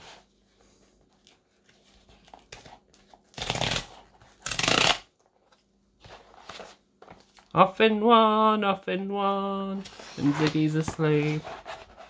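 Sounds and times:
cardboard tear strip ripping: 0:03.3 - 0:05.1.

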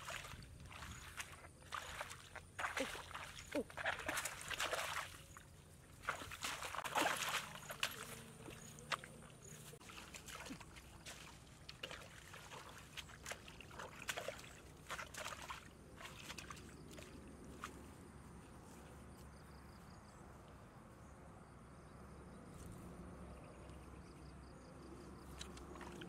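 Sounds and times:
hands splashing in muddy water: 0:00.0 - 0:17.9, 0:25.2 - 0:26.0.

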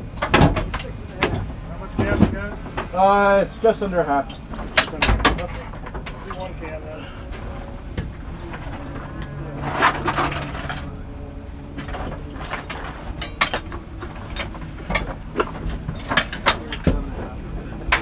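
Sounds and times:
low steady hum: 0:00.0 - 0:18.0
clicks and knocks of handling: 0:11.8 - 0:18.0.

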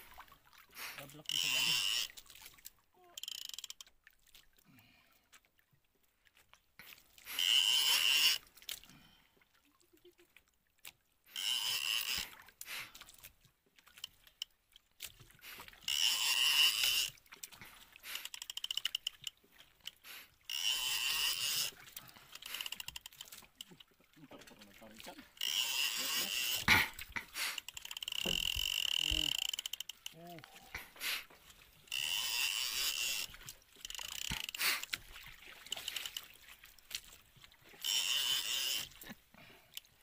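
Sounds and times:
faint rapid reel ticking: 0:00.9 - 0:02.2, 0:03.2 - 0:03.8, 0:07.4 - 0:08.4, 0:11.3 - 0:12.3, 0:15.8 - 0:17.2, 0:18.1 - 0:35.1, 0:35.7 - 0:36.3, 0:37.8 - 0:39.0
fishing reel whirring: 0:01.2 - 0:02.3, 0:03.2 - 0:03.9, 0:07.2 - 0:08.5, 0:11.3 - 0:12.3, 0:15.8 - 0:17.2, 0:18.2 - 0:19.4, 0:20.5 - 0:23.6, 0:25.3 - 0:30.9, 0:31.8 - 0:35.0, 0:35.6 - 0:36.3, 0:37.7 - 0:39.0.

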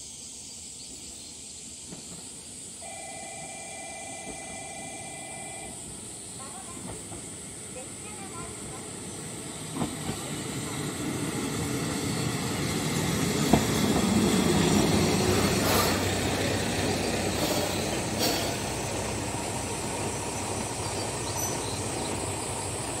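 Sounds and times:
diesel railcar engine and wheels: 0:00.0 - 0:23.0
brief hissing: 0:15.4 - 0:16.1, 0:17.3 - 0:18.8.

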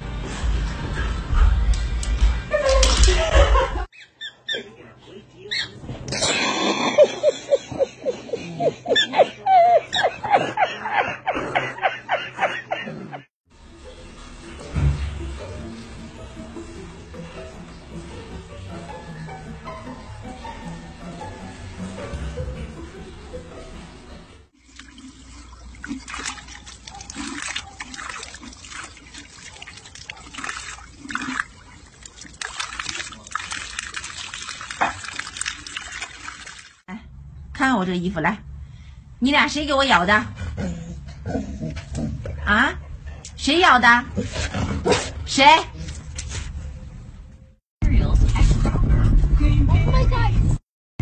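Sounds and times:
man laughing hard: 0:06.7 - 0:13.3
dog lapping water: 0:24.6 - 0:36.8
fountain water splashing: 0:24.6 - 0:36.8.

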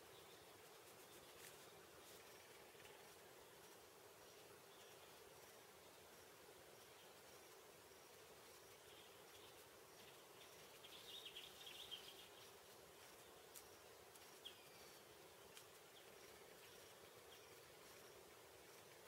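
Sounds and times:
faint clicks: 0:15.4 - 0:15.9.

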